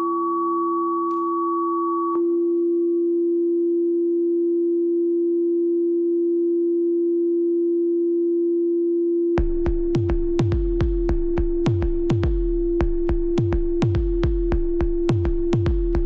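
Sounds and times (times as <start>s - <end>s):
electronic kick drum beat: 9.4s - 16.0s.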